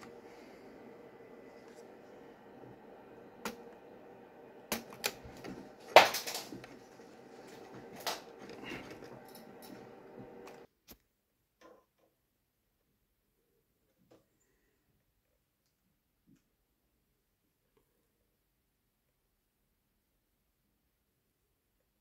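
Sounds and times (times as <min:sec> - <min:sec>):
faint steady hum: 0:00.0 - 0:10.7.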